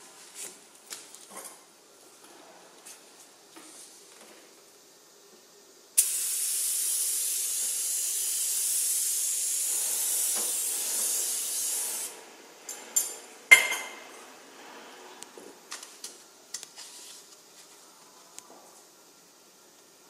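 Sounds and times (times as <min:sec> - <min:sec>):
spray gun hissing: 0:06.0 - 0:12.2.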